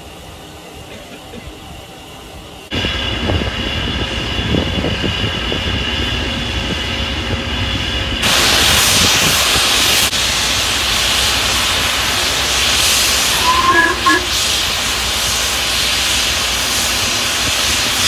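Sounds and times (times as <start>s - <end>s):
steam locomotive hissing: 0.0s - 18.0s
loud sharp steam hiss: 8.2s - 18.0s.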